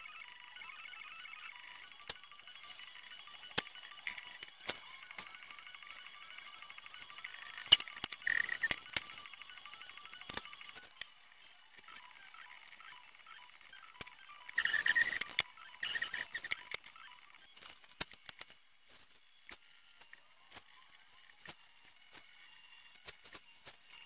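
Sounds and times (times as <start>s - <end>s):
sharp clicks and ticks: 0.1s - 18.6s.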